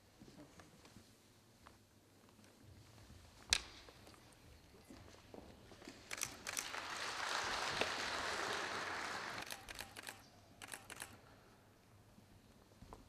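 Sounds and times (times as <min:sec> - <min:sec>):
camera shutters clicking: 0:06.1 - 0:06.8, 0:09.4 - 0:11.2
applause: 0:06.4 - 0:09.8.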